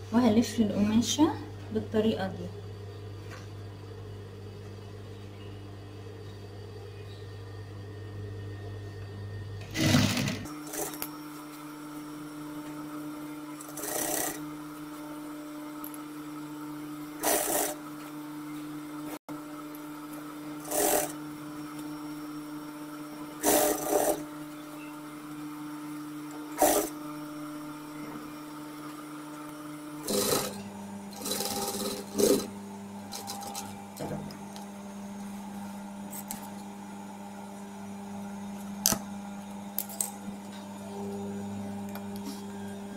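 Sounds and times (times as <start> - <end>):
sewing machine motor humming: 9.6 - 11.1, 13.6 - 14.6, 17.2 - 17.8, 20.6 - 21.9, 23.3 - 24.5, 26.3 - 27.2, 29.9 - 34.6
sewing machine stitching: 9.6 - 11.1, 13.6 - 14.4, 17.2 - 17.8, 20.6 - 21.2, 23.4 - 24.3, 26.6 - 27.0, 30.0 - 32.5, 33.1 - 33.7.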